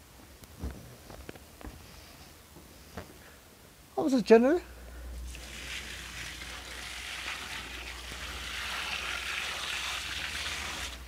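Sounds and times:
water poured into washing machine: 5.3s - 11.0s.

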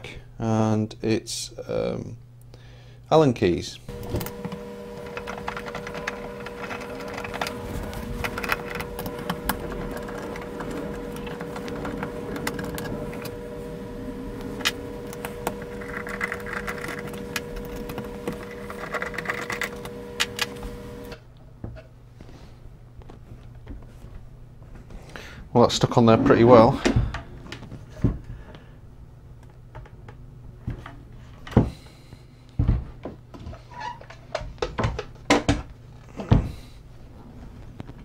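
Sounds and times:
steady hum: 0.0s - 38.0s.

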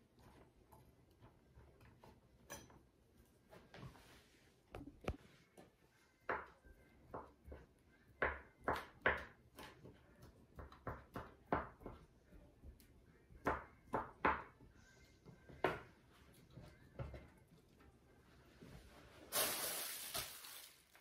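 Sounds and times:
knife chopping on wooden board: 8.2s - 9.9s, 10.5s - 12.0s.

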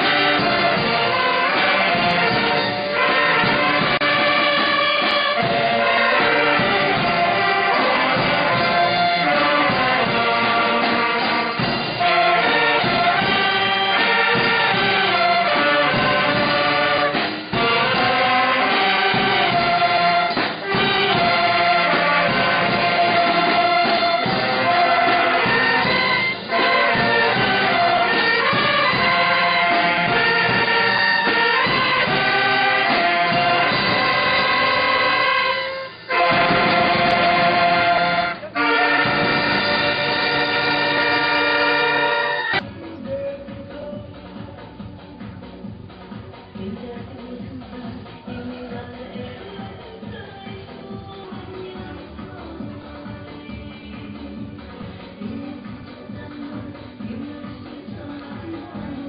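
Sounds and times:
brass band playing: 0.0s - 42.9s.

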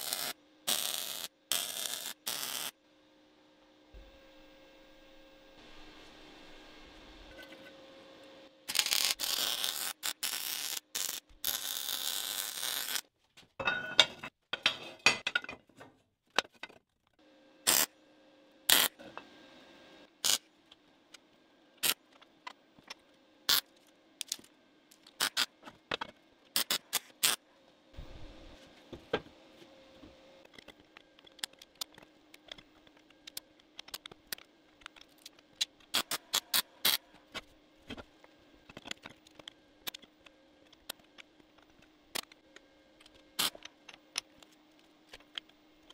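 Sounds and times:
welder arc crackling: 0.0s - 2.8s, 8.6s - 13.1s, 17.7s - 17.9s
faint electrical hum: 0.0s - 45.9s.

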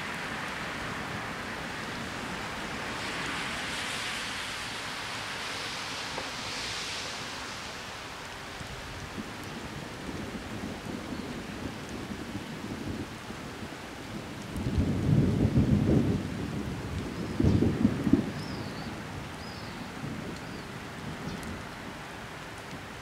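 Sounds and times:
rain hissing: 0.0s - 23.0s
thunder rumbling: 9.1s - 21.8s.

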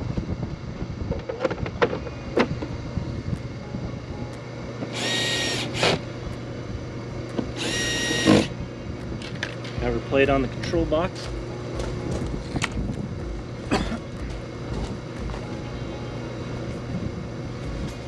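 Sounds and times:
steady low hum: 0.0s - 18.0s
cordless drill whirring: 4.9s - 6.0s, 7.5s - 8.5s.

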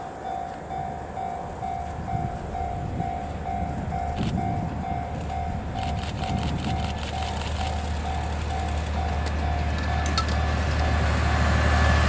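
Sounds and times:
diesel locomotive rumble: 0.0s - 12.0s
train wheels clicking over rail joints: 0.4s - 11.4s.

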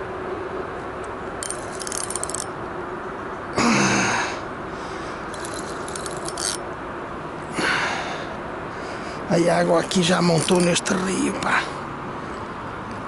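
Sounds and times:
fishing reel clicking: 1.4s - 2.5s, 5.3s - 6.6s.

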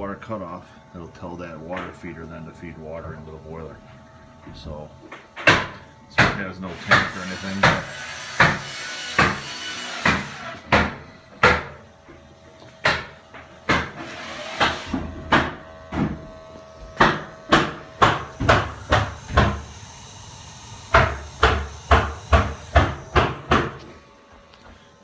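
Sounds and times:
hammering: 5.1s - 11.8s, 12.8s - 19.7s, 20.9s - 23.9s.

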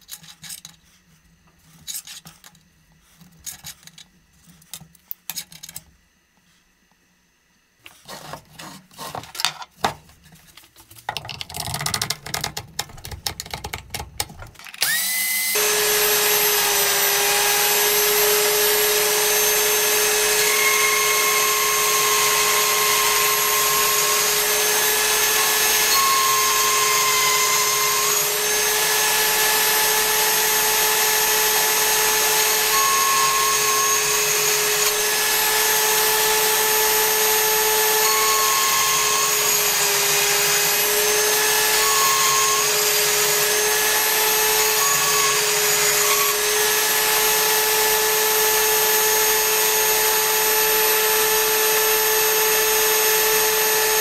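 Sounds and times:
power tool running: 14.6s - 54.0s.

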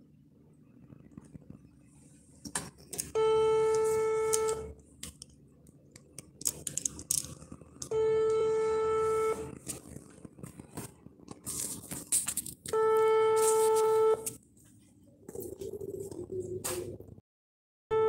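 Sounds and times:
handling clicks and rustles: 2.4s - 8.4s, 9.2s - 16.2s
telephone ringback tone: 7.9s - 9.5s, 12.8s - 14.3s.

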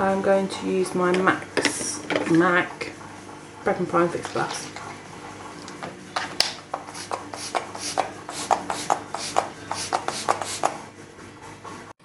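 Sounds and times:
spray bottle hissing: 6.8s - 10.8s.

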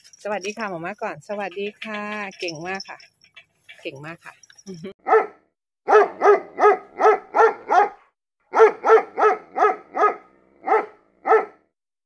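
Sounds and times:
dog barking: 5.0s - 11.7s.

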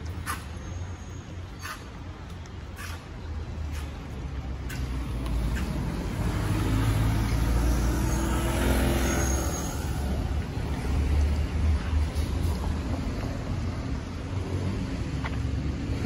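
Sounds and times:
low traffic rumble: 0.0s - 16.0s
vehicle passing by: 4.7s - 15.0s.

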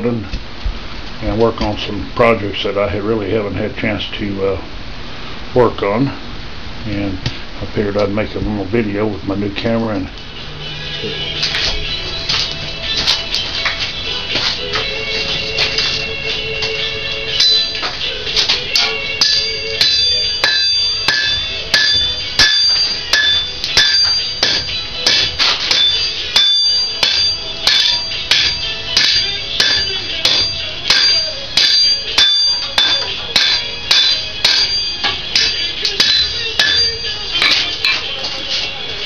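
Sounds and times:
hammer striking steel on anvil: 17.3s - 38.5s.

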